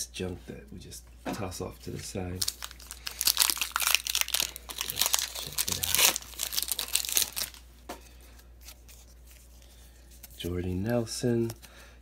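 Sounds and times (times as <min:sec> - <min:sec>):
foil wrapper crinkling and tearing: 0:02.3 - 0:07.7.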